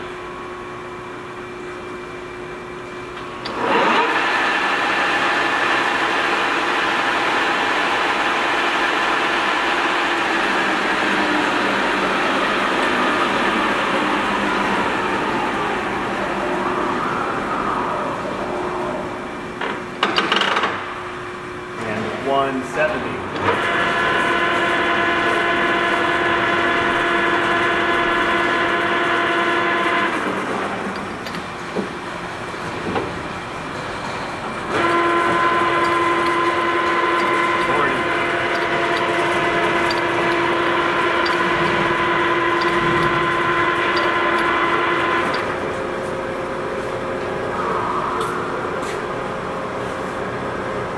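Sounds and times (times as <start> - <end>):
lathe headstock running: 3.5 - 17.4, 23.4 - 30.6, 34.6 - 48.0.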